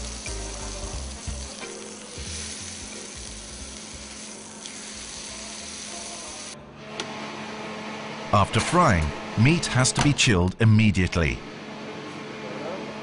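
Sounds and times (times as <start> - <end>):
meat sizzling in frying pan: 0.0 - 6.6
low background music: 0.0 - 6.9.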